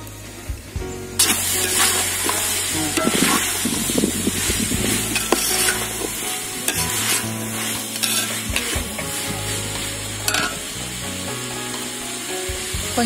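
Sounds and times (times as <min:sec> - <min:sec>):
vegetables sizzling: 0:00.0 - 0:13.0
spoon scraping metal pot: 0:01.6 - 0:08.5.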